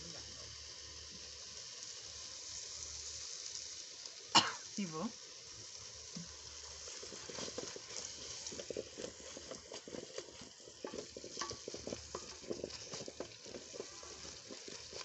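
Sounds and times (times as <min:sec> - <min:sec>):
vegetables sizzling in oil: 0:00.0 - 0:15.0
wooden spoon scraping a metal pot: 0:06.2 - 0:15.0.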